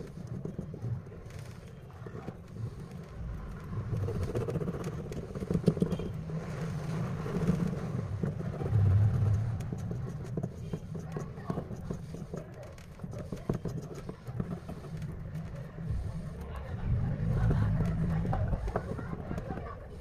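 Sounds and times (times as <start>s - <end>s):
low rumble: 6.4s - 10.4s, 15.8s - 20.0s.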